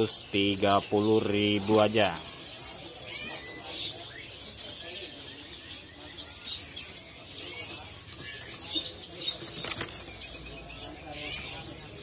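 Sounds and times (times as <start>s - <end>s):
songbirds chirping: 0.0s - 12.0s
wings flapping: 9.3s - 10.2s.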